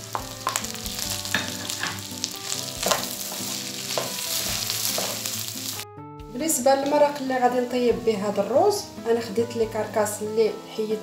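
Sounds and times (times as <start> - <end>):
rice sizzling in oil: 0.0 - 5.8.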